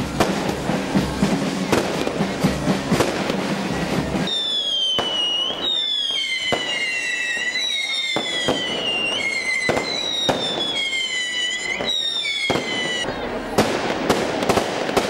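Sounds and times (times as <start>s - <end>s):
firework cracks: 0.0s - 3.5s, 4.1s - 15.0s
whistling firework shells: 4.2s - 15.0s.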